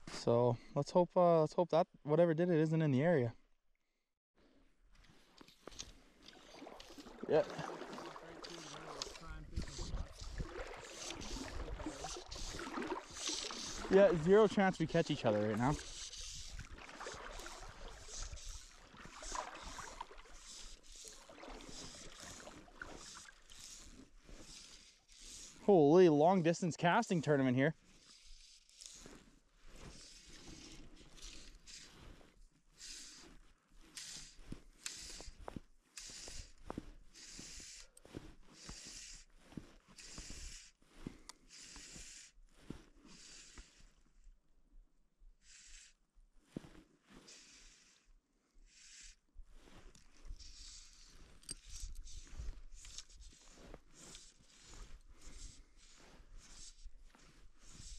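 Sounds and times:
fly line swishing: 0:05.4 - 0:25.7, 0:27.8 - 0:43.8, 0:48.7 - 0:57.9.

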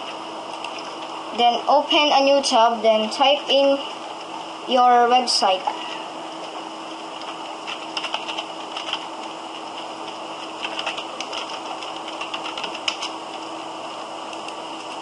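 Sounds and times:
computer keyboard keys clicking: 0:07.2 - 0:13.4.

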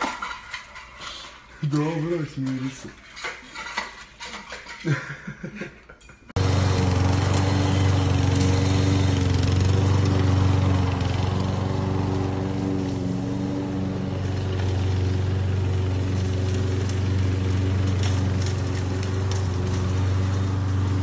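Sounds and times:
lawn mower engine running: 0:06.3 - 0:21.0.

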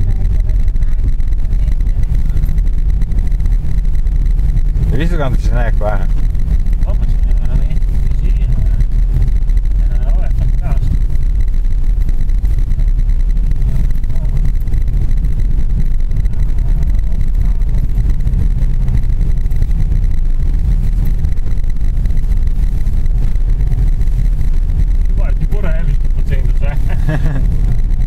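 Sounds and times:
car engine and tyres rumbling: 0:00.0 - 0:28.0.

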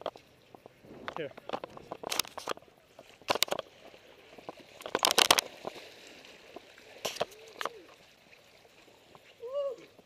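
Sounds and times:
fish thrashing and splashing: 0:03.2 - 0:09.2.

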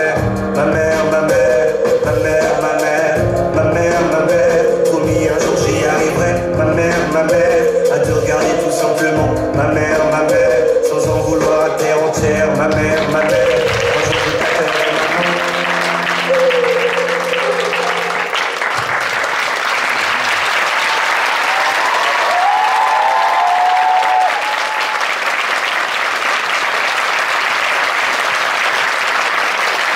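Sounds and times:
held notes of music: 0:00.0 - 0:18.4
audience applauding: 0:13.0 - 0:29.9
person whooping: 0:20.1 - 0:25.1.

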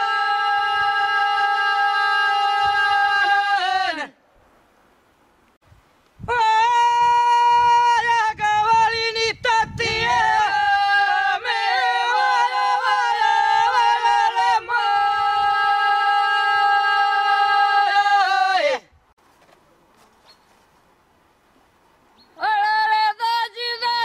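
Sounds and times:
women singing in close harmony: 0:09.9 - 0:18.8.

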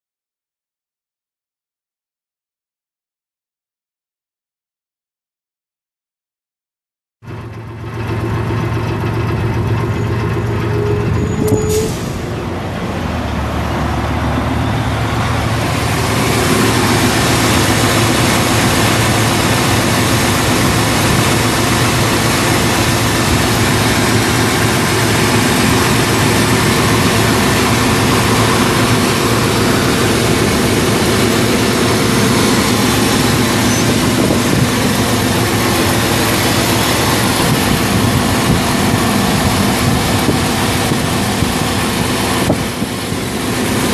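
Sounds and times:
truck engine idling: 0:07.2 - 0:43.9
short rising whine: 0:09.6 - 0:43.9.

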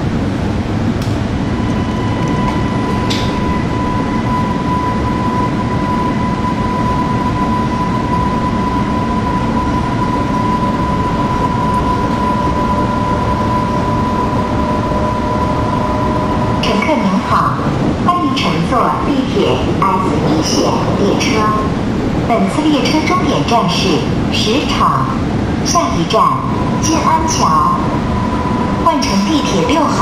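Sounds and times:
train running noise: 0:00.0 - 0:30.0
thin high whine: 0:01.2 - 0:18.2, 0:25.8 - 0:30.0.

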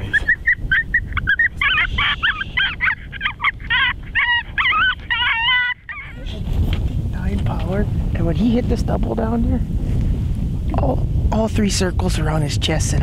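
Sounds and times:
electronic canine whimpers and yips: 0:00.0 - 0:06.3.

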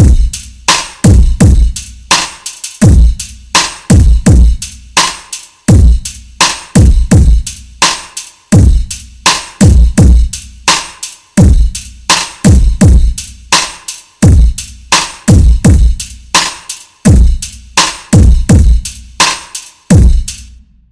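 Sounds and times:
deep kick drums sliding down: 0:00.0 - 0:00.3
instrumental hip-hop beat: 0:00.0 - 0:20.9
sharp snare hits: 0:02.1 - 0:02.8, 0:05.0 - 0:05.4, 0:10.7 - 0:11.2, 0:12.1 - 0:12.5, 0:16.4 - 0:16.8, 0:19.2 - 0:19.7.

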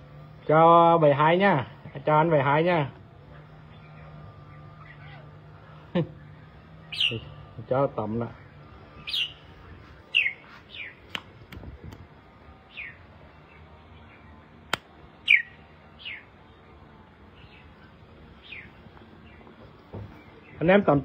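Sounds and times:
bird chirping: 0:03.2 - 0:11.2, 0:12.6 - 0:21.0
sharp click: 0:11.1 - 0:12.1, 0:14.7 - 0:14.9.

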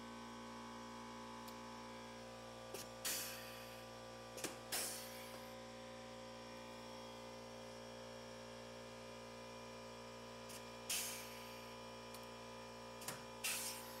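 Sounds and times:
air hiss: 0:13.4 - 0:14.0.

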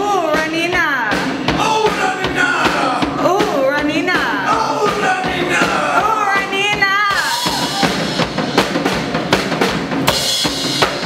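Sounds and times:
drum kit punk beat: 0:00.0 - 0:11.0.

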